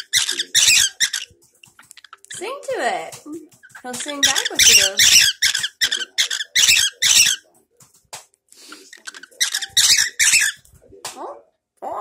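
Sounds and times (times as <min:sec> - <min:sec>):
cockatiel chirping and squawking: 0:00.0 - 0:01.3, 0:03.6 - 0:07.4, 0:08.8 - 0:10.6.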